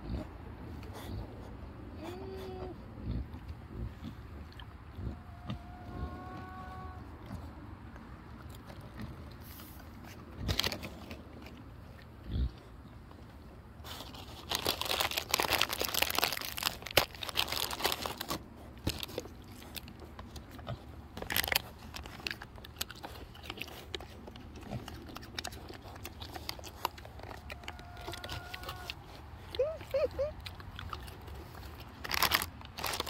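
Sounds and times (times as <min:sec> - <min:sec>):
food crinkling and crunching: 0:07.2 - 0:12.4, 0:13.1 - 0:33.0.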